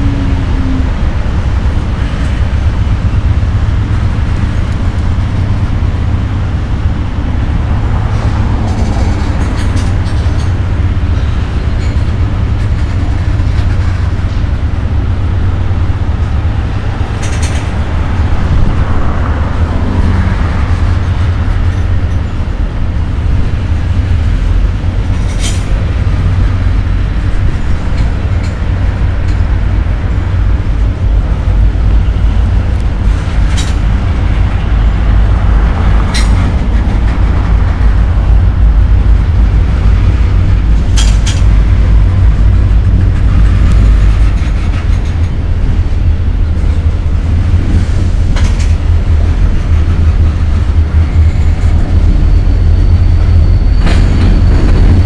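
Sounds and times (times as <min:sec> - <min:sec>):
freight cars rumbling on rails: 0:00.0 - 0:55.0.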